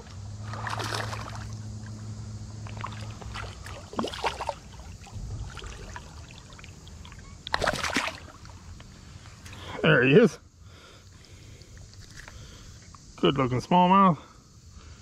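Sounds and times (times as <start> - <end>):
low steady hum: 0.0 - 15.0
fish splashing at water surface: 0.5 - 1.6, 2.6 - 8.6.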